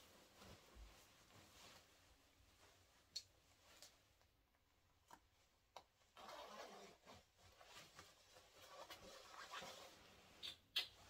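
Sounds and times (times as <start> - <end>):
jacket rustling: 0.0 - 4.4, 5.0 - 11.0
zipper pulled up: 6.2 - 7.3, 8.6 - 10.0.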